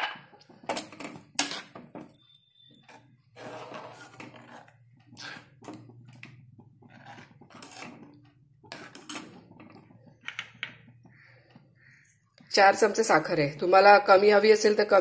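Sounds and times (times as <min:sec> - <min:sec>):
spoon scraping metal pan: 0:01.2 - 0:12.0.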